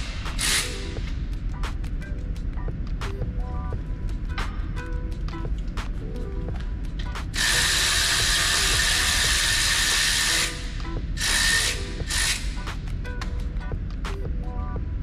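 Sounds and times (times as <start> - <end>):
pneumatic wrench whining: 0.0 - 1.0, 7.3 - 12.6.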